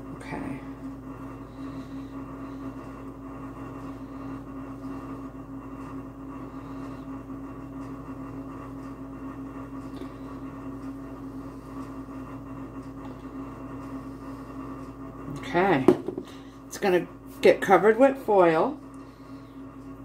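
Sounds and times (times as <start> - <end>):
machine hum: 0.0 - 20.0.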